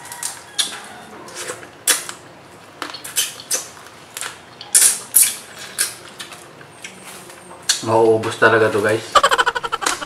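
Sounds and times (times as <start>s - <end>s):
wet clicks and crackles of eating: 2.8s - 7.8s.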